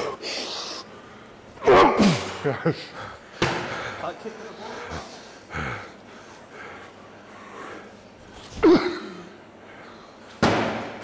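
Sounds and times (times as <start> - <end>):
man's effort grunt: 1.6 - 2.4.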